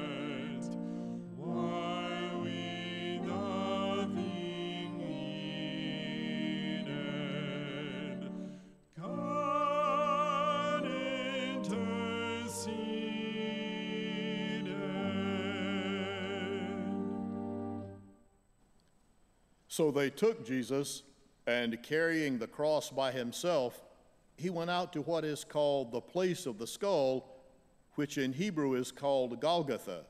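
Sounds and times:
low held accompaniment notes: 0.0 - 18.1
woman and man singing: 9.0 - 17.0.

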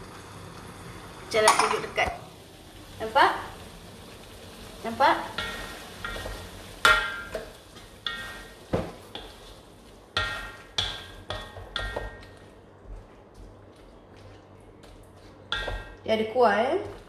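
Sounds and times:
metal wok ringing: 1.3 - 2.1, 4.8 - 9.4, 10.1 - 12.4
wooden spatula scraping a wok: 5.3 - 13.0.

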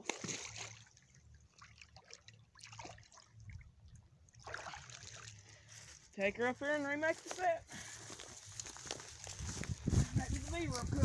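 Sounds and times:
water splashing: 0.0 - 5.7.

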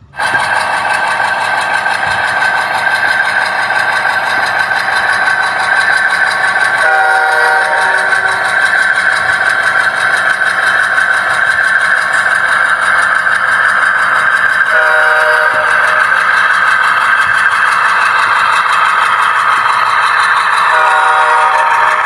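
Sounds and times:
diesel locomotive running: 0.0 - 22.0
locomotive horn blast: 6.8 - 8.4, 14.7 - 16.0, 20.6 - 22.0.

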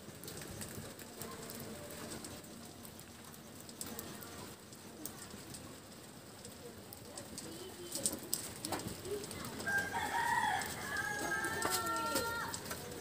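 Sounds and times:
fire popping: 0.0 - 13.0
wood fire crackling: 0.0 - 13.0
rooster crowing: 9.6 - 12.6.

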